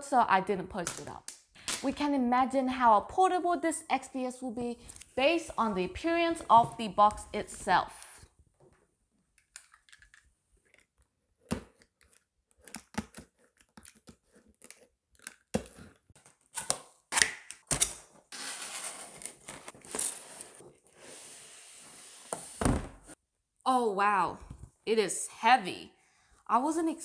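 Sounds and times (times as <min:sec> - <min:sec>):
cardboard packaging handled: 0:17.7 - 0:20.8.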